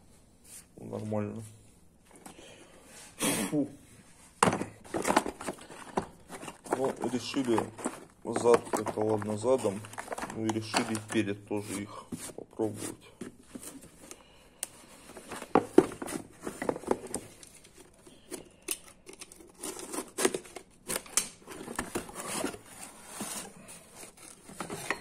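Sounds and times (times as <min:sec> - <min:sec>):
cardboard box being opened: 0:04.9 - 0:11.1.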